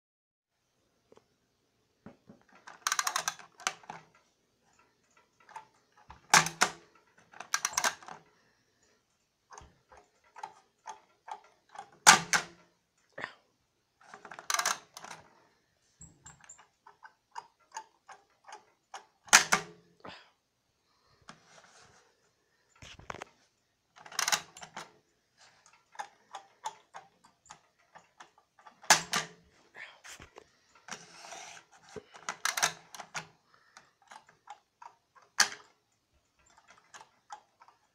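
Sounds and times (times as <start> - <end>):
plastic toy clicking: 2.4 - 8.3, 9.5 - 12.7, 14.0 - 15.3, 16.3 - 19.8, 23.9 - 29.5, 30.7 - 37.9.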